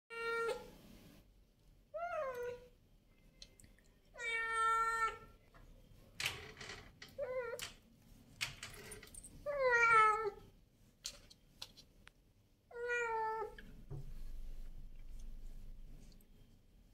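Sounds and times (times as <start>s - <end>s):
cat meowing: 4.2s - 5.3s, 9.5s - 10.4s, 12.7s - 13.6s.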